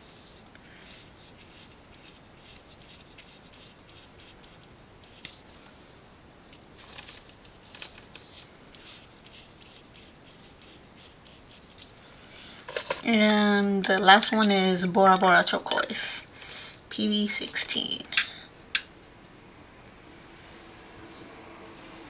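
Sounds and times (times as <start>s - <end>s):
brush scratching on paper: 0.3s - 5.3s, 8.2s - 11.9s.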